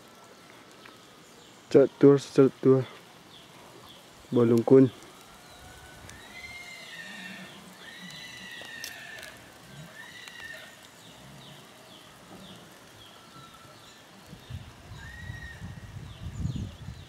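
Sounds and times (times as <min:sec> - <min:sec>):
faint background hiss: 0:00.0 - 0:17.0
high arching animal calls: 0:02.7 - 0:16.1.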